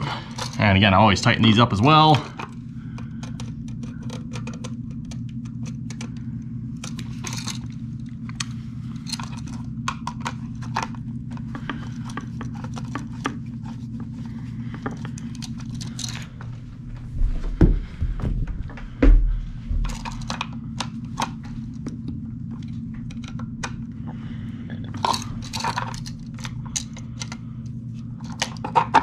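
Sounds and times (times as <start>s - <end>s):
steady low hum: 0.0s - 29.0s
copper wires being handled: 0.2s - 0.8s, 2.0s - 24.0s, 24.7s - 29.0s
heavy thumps: 16.8s - 20.2s.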